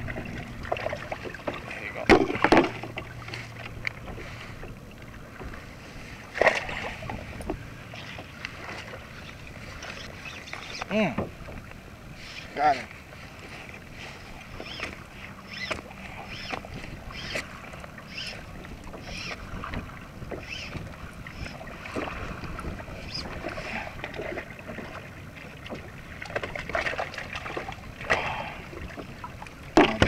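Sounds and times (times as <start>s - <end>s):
fish splashing beside hull: 0.0s - 30.0s
small waves slapping kayak hull: 0.0s - 30.0s
wind: 0.0s - 30.0s.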